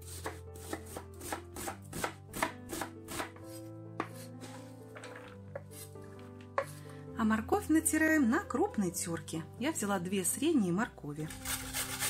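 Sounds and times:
soft background music: 0.0s - 12.0s
knife chopping on cutting board: 0.1s - 4.3s.

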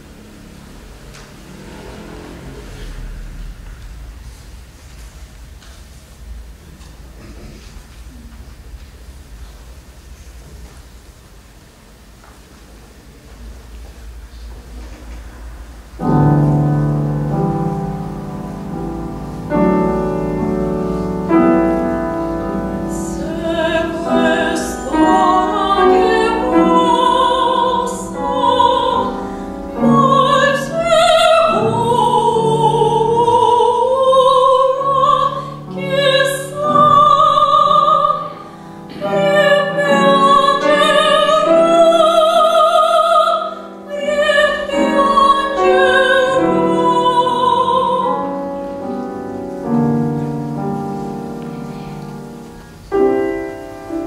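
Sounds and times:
grand piano chords: 0.0s - 54.0s
soprano singing classical: 15.8s - 54.0s.

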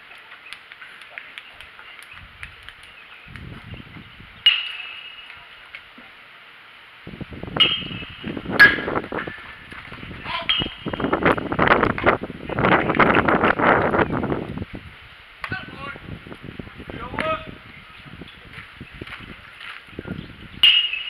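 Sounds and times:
rough scraping and rustling: 7.1s - 17.2s
sharp metallic clinks: 20.6s - 21.0s.

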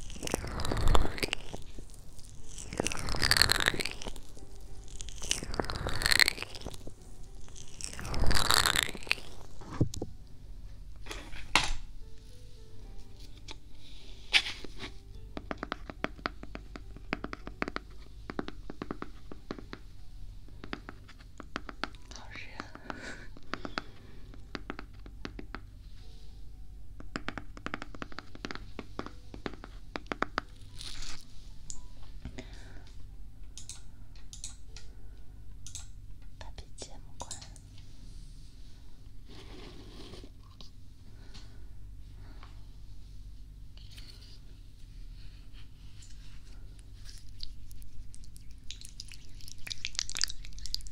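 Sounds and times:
fingers tapping on plastic jar: 15.4s - 19.8s, 20.6s - 22.7s, 23.4s - 25.6s, 27.0s - 30.5s.

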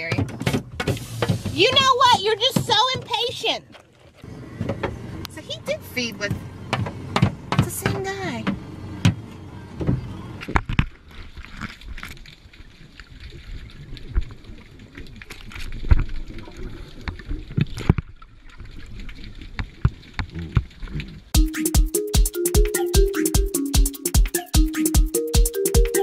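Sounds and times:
electronic music with a beat: 21.4s - 26.0s.

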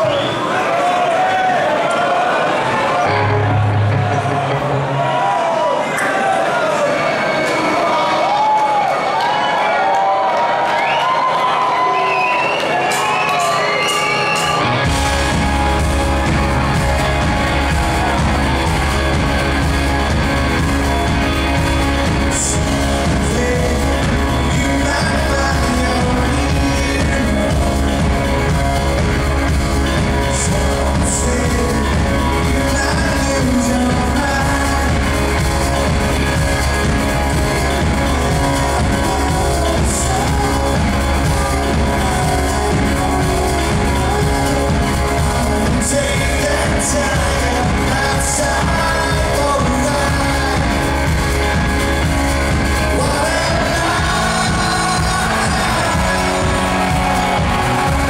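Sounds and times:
live rock band: 2.7s - 58.0s
man singing: 14.3s - 58.0s.

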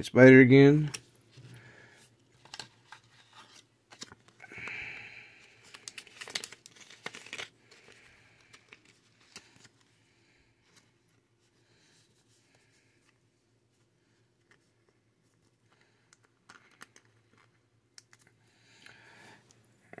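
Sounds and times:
foil wrapper crinkling: 5.5s - 9.8s.

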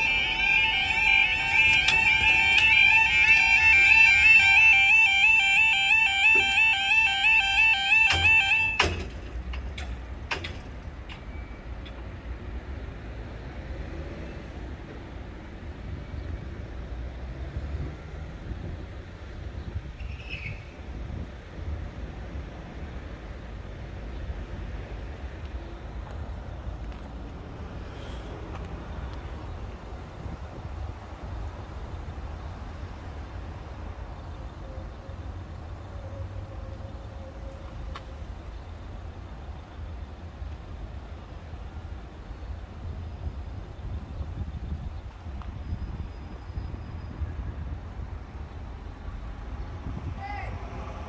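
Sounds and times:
road traffic rumble: 0.0s - 51.0s.

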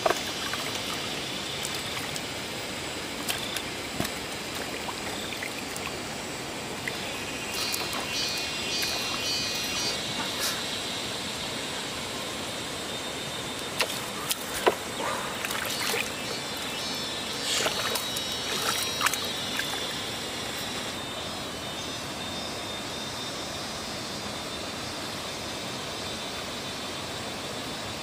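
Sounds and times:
water splashing and trickling: 0.0s - 10.4s, 13.6s - 21.0s
steady background hiss: 0.0s - 28.0s.

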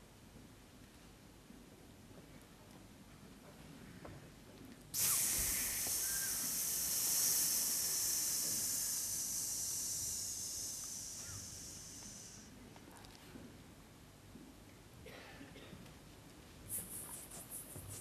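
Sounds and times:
steady high hiss: 4.9s - 13.4s, 16.6s - 18.0s.

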